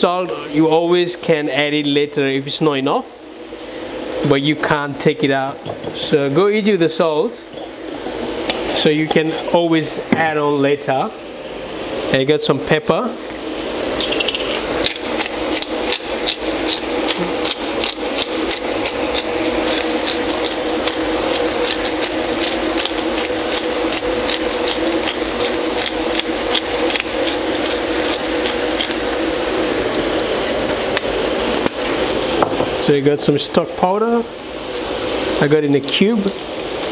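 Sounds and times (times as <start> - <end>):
food frying in a pan: 2.4 - 36.9
pepper grinder clicking: 14.0 - 29.1.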